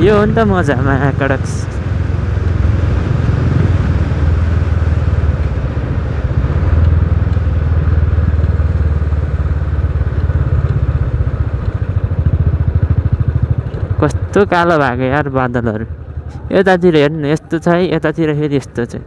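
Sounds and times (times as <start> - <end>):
motorcycle engine running: 0.0 - 17.9.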